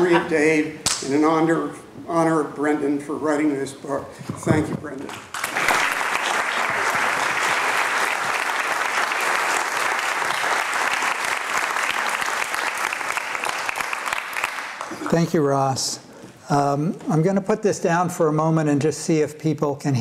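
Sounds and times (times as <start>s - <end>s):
audience applauding: 5.1s - 15.2s.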